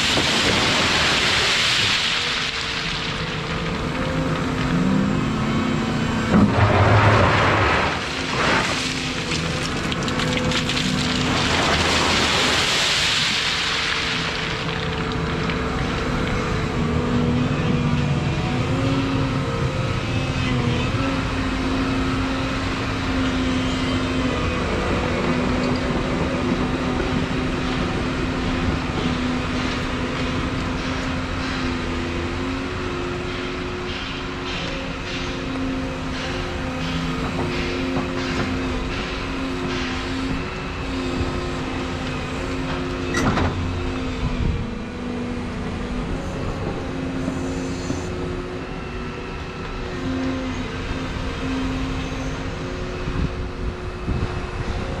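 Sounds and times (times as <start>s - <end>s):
excavator diesel engine running: 13.5s - 55.0s.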